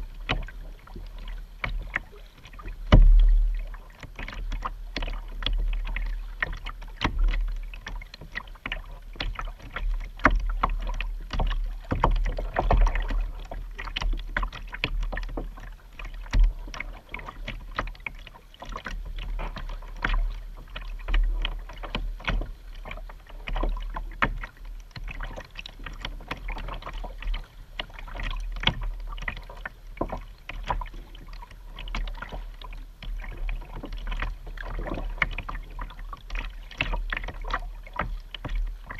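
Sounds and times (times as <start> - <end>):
paddle splashes and drips: 0.0 - 38.9
water slapping plastic hull: 0.0 - 38.9
steady low rumble: 2.2 - 4.1.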